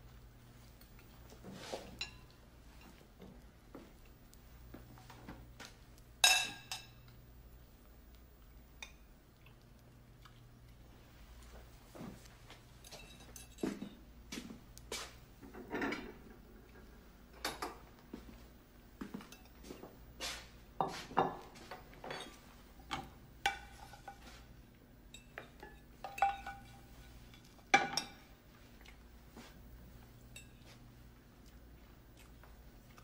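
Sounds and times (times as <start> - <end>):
forks and plates clinking: 1.8 - 3.0, 6.2 - 7.1, 12.8 - 14.0, 22.0 - 24.4, 25.1 - 28.3, 30.3 - 30.8.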